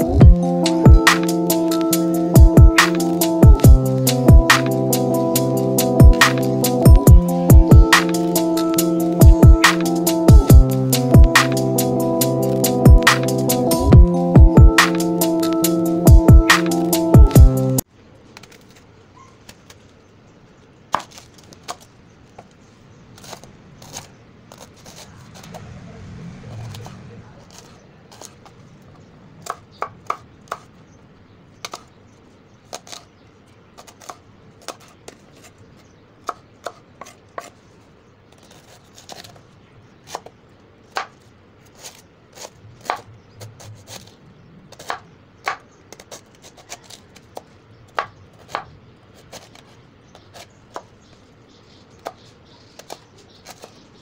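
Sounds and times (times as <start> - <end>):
knife slicing cabbage on board: 44.7 - 50.9.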